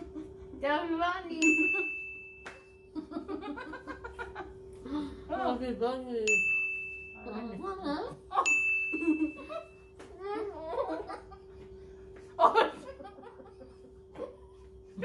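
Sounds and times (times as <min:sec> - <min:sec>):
people laughing: 0:03.0 - 0:04.9, 0:07.6 - 0:11.7, 0:12.4 - 0:14.5
ding sound effect: 0:06.3 - 0:07.5, 0:08.5 - 0:09.6.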